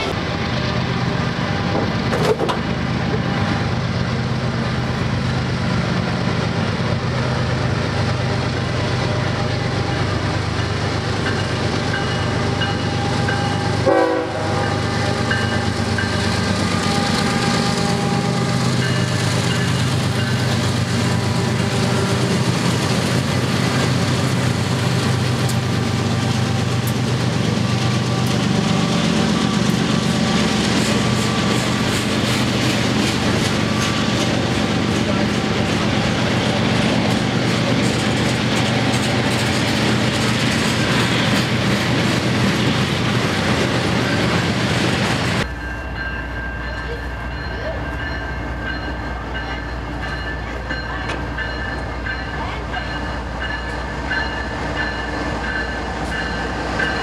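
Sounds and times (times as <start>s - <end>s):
diesel locomotives passing: 0.0s - 57.0s
freight cars clickety-clack: 1.7s - 2.7s.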